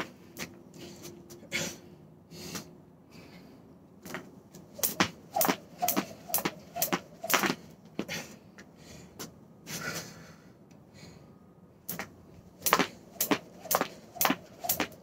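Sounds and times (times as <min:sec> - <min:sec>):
jump rope slapping wooden deck: 0:04.1 - 0:08.1, 0:11.9 - 0:15.0.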